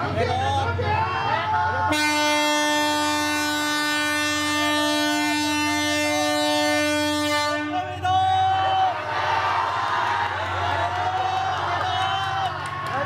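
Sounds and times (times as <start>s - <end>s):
locomotive horn blast: 1.9s - 8.0s.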